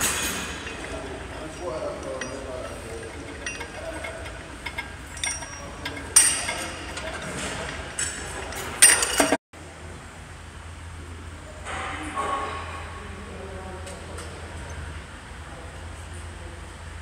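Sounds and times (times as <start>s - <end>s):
metal gym equipment clanking: 0.0s - 9.4s
low steady hum: 0.0s - 17.0s.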